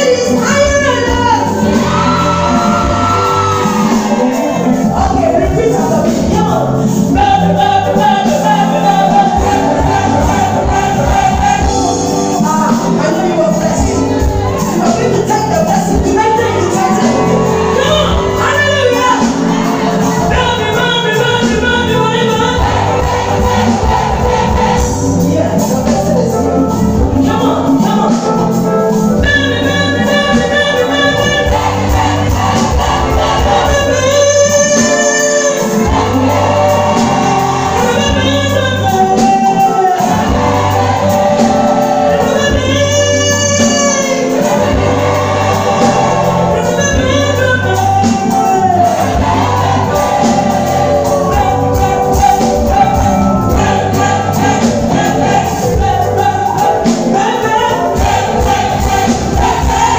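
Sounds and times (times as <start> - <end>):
band with steady bass line: 0.0 - 59.9
women singing in chorus: 29.7 - 38.5, 48.4 - 59.9.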